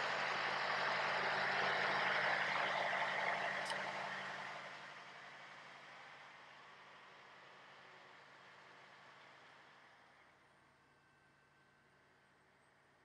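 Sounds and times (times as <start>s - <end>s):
diesel truck engine idling: 0.0s - 4.6s.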